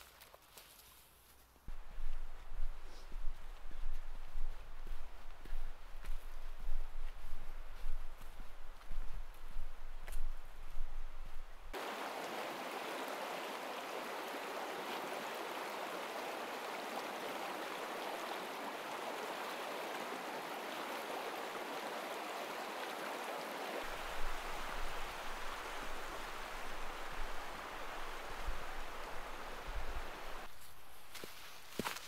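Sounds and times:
stream rushing: 7.4 - 30.5.

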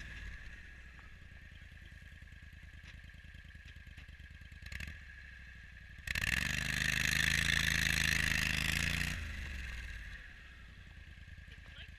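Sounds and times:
engine revving: 0.0 - 1.2, 4.3 - 11.9.

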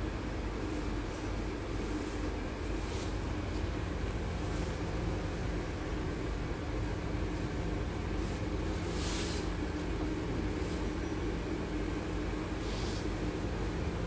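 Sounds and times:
bus engine idling: 0.0 - 14.0
brief hiss: 12.6 - 13.2.

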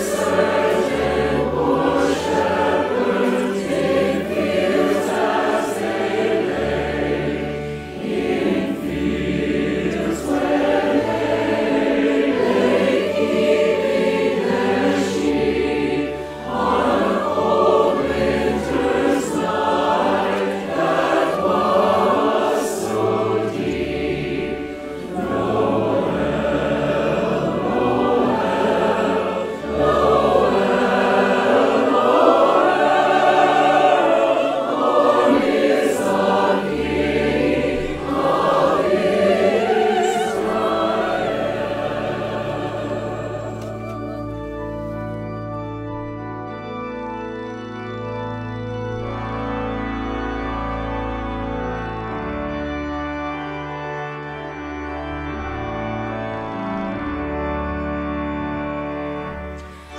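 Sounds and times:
choir singing: 0.0 - 59.9
low instrumental accompaniment: 0.0 - 59.9.

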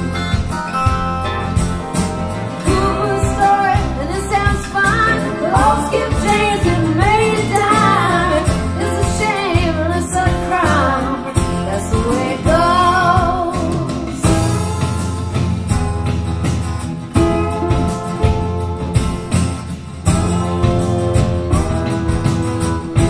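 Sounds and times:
woman singing with band: 2.6 - 14.4.

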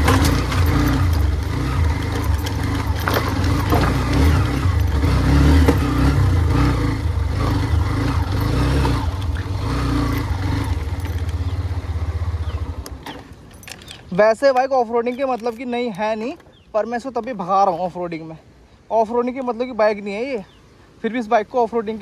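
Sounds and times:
sharp clicks and knocks: 0.0 - 6.2
motorcycle engine running: 0.0 - 14.1.

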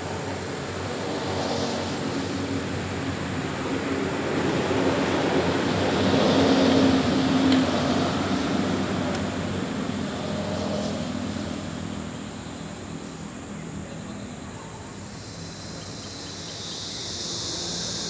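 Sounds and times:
vehicle passing by: 0.2 - 14.2.

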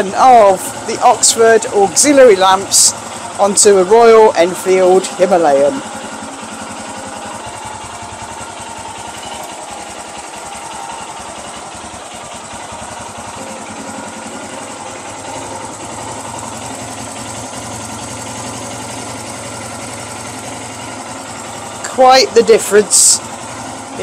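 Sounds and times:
motorcycle engine idling: 0.0 - 24.0.

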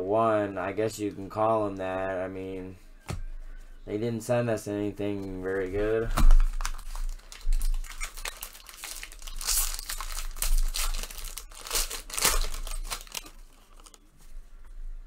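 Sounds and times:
foil wrapper crinkling and tearing: 6.4 - 14.1.

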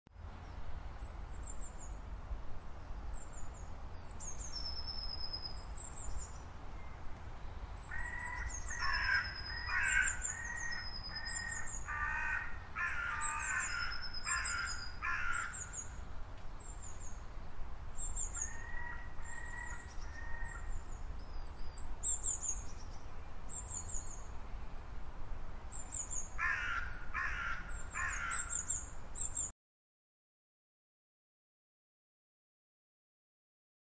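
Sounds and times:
small birds chirping and whistling: 3.1 - 7.0, 18.0 - 18.6, 19.2 - 24.3, 25.7 - 27.0, 27.7 - 29.5
harsh bird calls: 7.8 - 16.0, 18.0 - 22.7, 25.7 - 29.5.

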